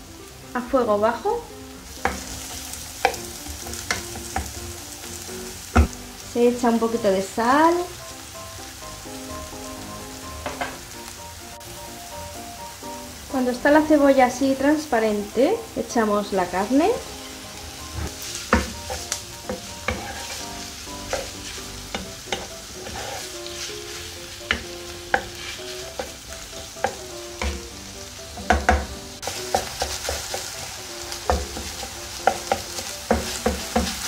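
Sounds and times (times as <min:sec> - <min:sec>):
meat sizzling in a frying pan: 0:00.0 - 0:34.0
wooden spoon knocking on pan: 0:02.0 - 0:04.8, 0:05.7 - 0:06.0, 0:10.4 - 0:10.9, 0:18.0 - 0:20.4, 0:21.0 - 0:23.2, 0:24.4 - 0:26.2, 0:26.8 - 0:27.8, 0:28.4 - 0:30.5, 0:31.2 - 0:34.0.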